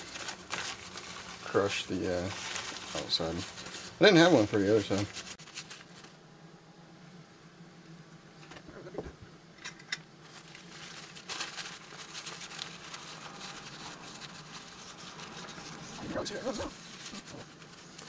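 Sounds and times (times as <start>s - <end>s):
paper towel rustling: 0.0s - 6.2s, 10.2s - 18.0s.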